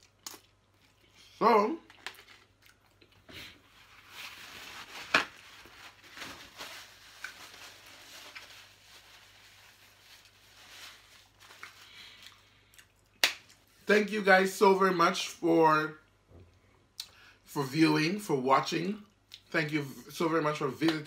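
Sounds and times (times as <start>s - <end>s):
paper napkin rustling: 3.4s - 12.2s.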